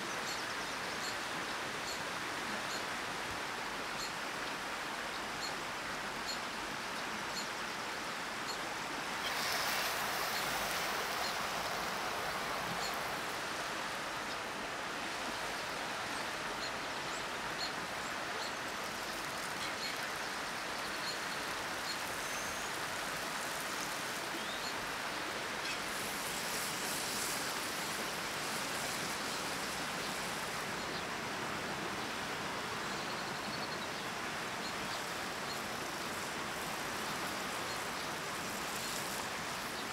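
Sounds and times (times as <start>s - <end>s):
outdoor rushing hiss: 8.0s - 16.4s.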